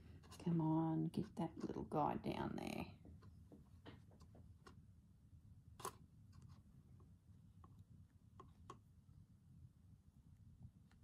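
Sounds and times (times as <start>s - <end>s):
faint clicks and taps on tabletop: 5.8s - 9.0s.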